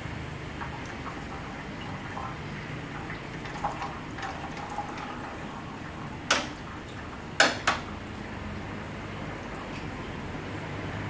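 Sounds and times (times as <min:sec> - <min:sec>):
oil trickling into metal pan: 0:00.4 - 0:08.2.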